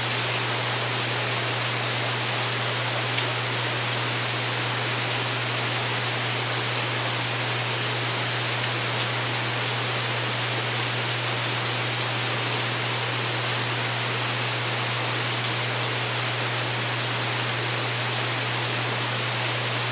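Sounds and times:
rain pattering on roof: 0.1 - 7.4, 8.3 - 12.8.

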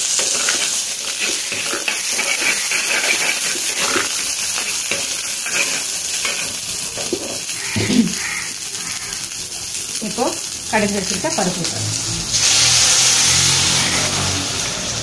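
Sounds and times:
onion sizzling in hot oil: 0.0 - 15.0
ladle scraping pot: 0.2 - 7.4.

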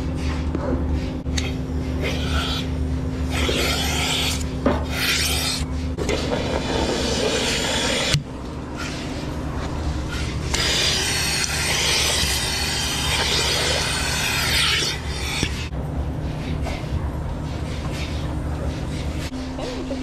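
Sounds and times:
steady low hum: 0.0 - 20.0
air hissing into teat cups: 3.3 - 5.6, 6.6 - 8.2, 10.1 - 15.7.

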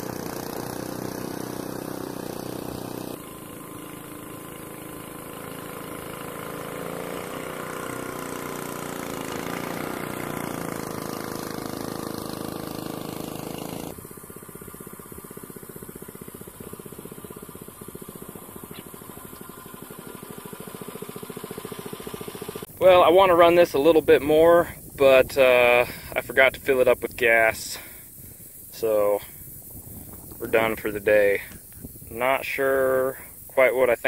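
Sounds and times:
boat motor running: 0.0 - 27.2.

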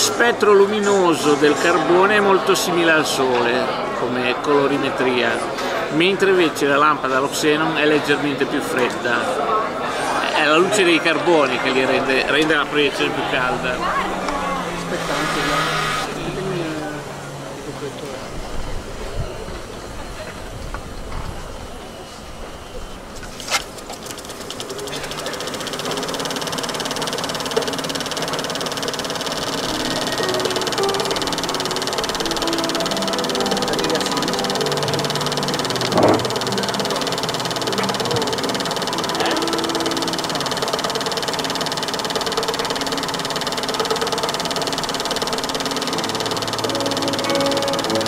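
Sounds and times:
film projector clattering: 10.2 - 16.3, 23.5 - 48.0.

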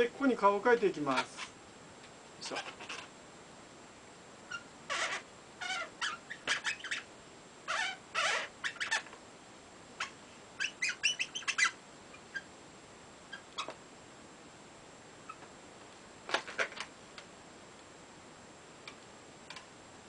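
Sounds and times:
marker squeaking on balloon: 2.4 - 3.1, 4.5 - 7.1, 7.7 - 9.2, 10.0 - 12.5, 13.3 - 13.8.

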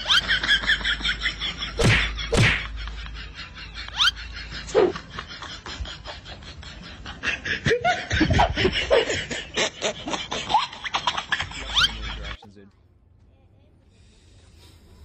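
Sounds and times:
snickering laughter: 0.0 - 12.4.

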